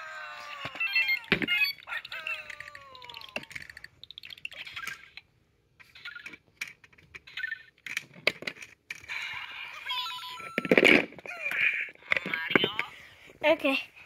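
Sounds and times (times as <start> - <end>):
plastic pieces clicking and knocking: 0.4 - 9.1, 10.4 - 12.9.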